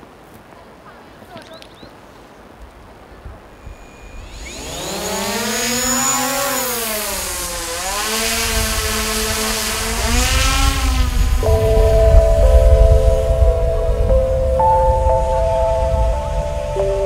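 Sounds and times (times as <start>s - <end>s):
drone propellers whining: 3.5s - 17.0s
music: 11.4s - 17.0s.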